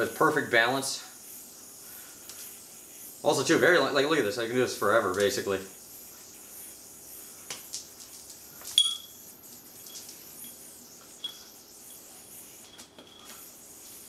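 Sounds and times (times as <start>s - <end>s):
sharp metallic clink: 8.8s - 9.2s.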